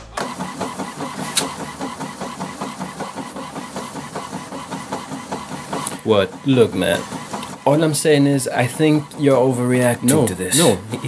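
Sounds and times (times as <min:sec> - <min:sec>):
printer chattering: 0:00.0 - 0:11.0
printer sharp click: 0:00.0 - 0:11.0.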